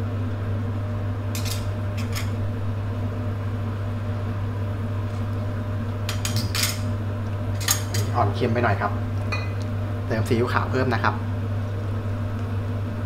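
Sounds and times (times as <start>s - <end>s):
kitchen appliance humming: 0.0s - 13.0s.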